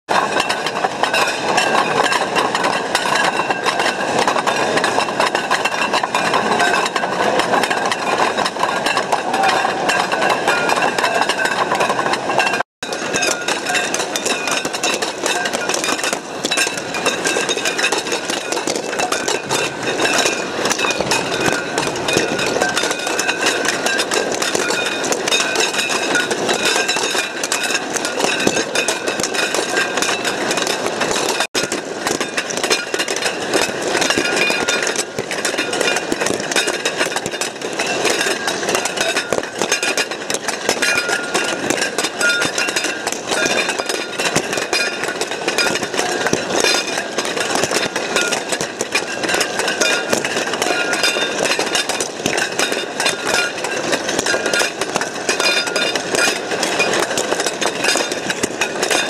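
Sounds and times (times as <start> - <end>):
balls rolling in ceramic bowls: 0.1 - 59.0
bowls ringing: 0.2 - 59.0.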